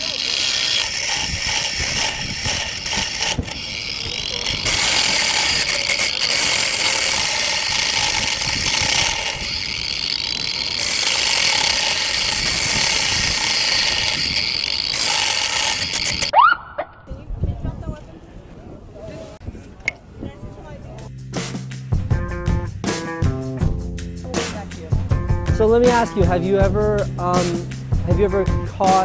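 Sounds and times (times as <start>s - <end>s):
angle grinder cutting metal: 0.0s - 16.3s.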